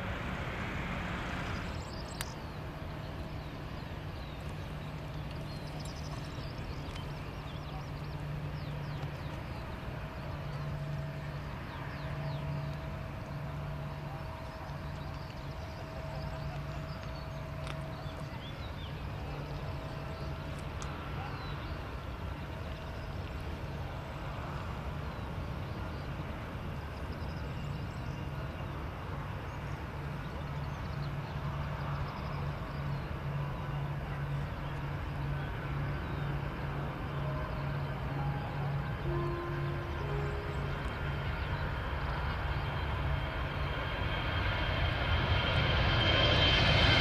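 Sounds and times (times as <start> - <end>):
distant jet engines rumbling: 0.0 - 47.0.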